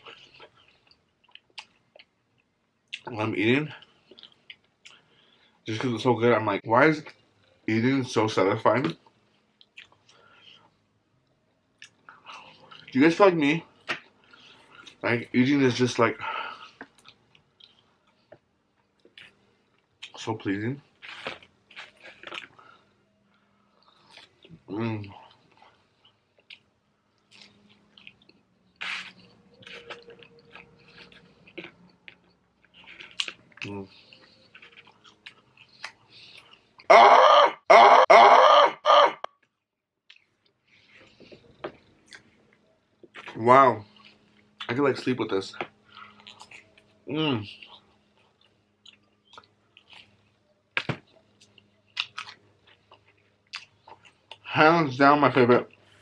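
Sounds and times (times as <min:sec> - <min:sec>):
close chewing with lip smacks: 0:00.0 - 0:03.1, 0:03.8 - 0:05.1, 0:09.0 - 0:13.0, 0:21.0 - 0:22.7, 0:23.7 - 0:36.9, 0:39.4 - 0:44.8, 0:45.6 - 0:54.5.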